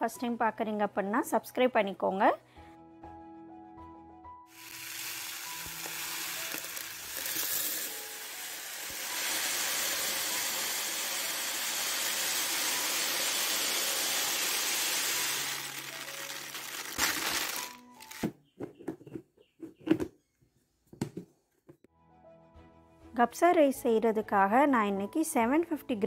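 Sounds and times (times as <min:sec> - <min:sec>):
rice pouring into plastic tub: 0:04.5 - 0:18.1.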